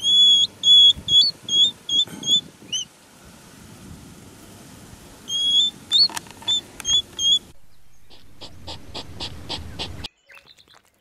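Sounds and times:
hedgehog chirps: 0.0s - 2.9s, 5.3s - 7.4s, 8.0s - 10.6s.

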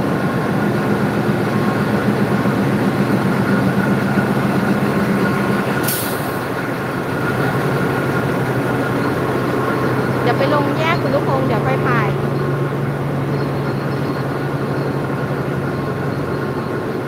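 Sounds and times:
diesel locomotive engine hum: 0.0s - 17.0s
air hissing: 5.8s - 6.6s.

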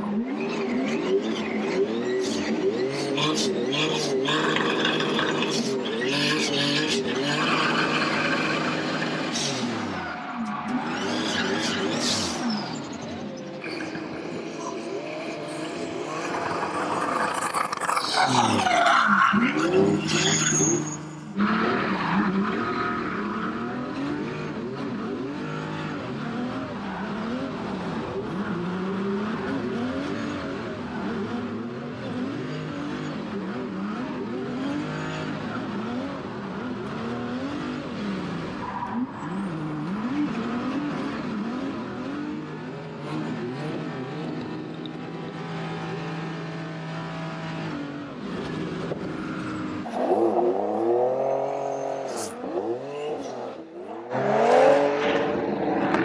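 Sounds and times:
car engine revving: 0.0s - 56.0s
tyres skidding: 0.2s - 56.0s.

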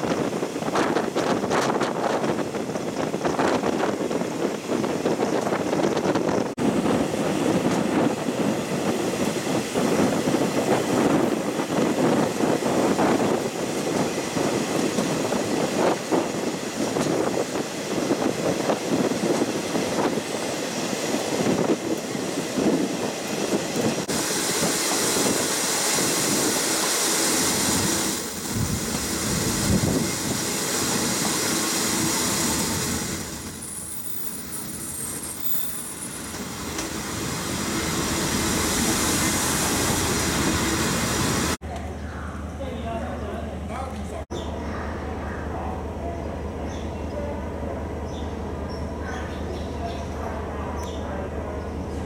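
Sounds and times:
rushing hiss of train: 0.0s - 41.6s
high-pitched squeal: 27.2s - 36.8s.

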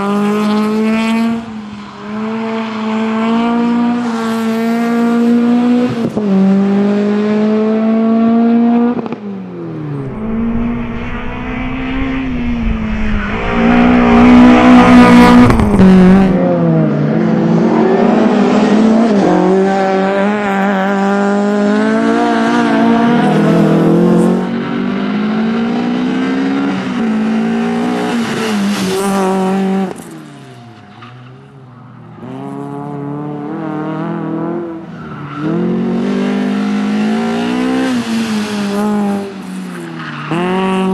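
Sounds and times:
rally car engine revving: 9.8s - 31.3s
deep low rumble: 9.9s - 16.4s.

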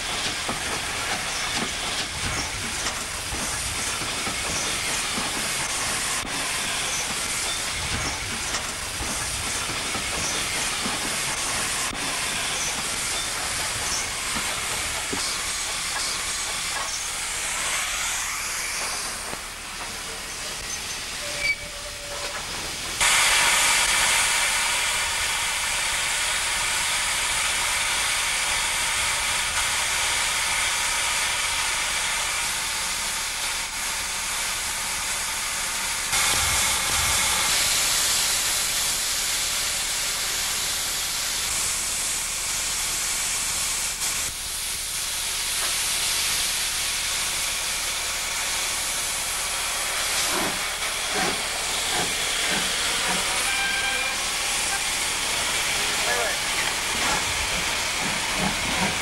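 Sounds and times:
steam hissing: 0.0s - 59.0s.

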